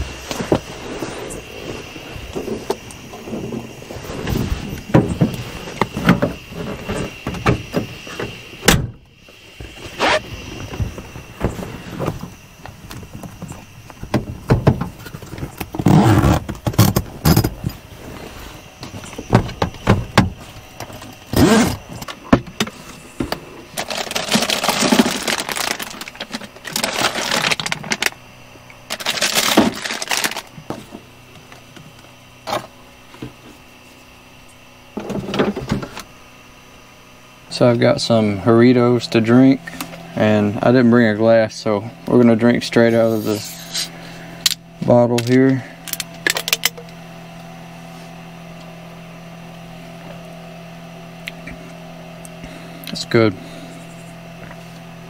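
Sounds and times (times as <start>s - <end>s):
scraping rustling noises: 42.9s - 44.0s.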